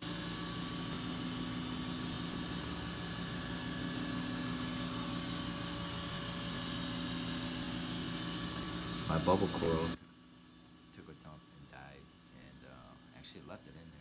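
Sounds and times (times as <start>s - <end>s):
high whine: 0.0s - 10.0s
aquarium pumps humming: 0.0s - 10.9s.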